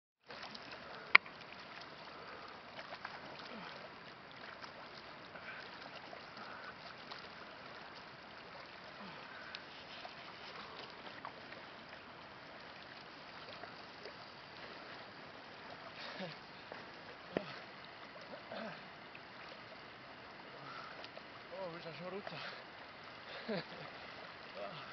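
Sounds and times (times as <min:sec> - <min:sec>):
gentle water wash and splashes: 0:00.2 - 0:24.9.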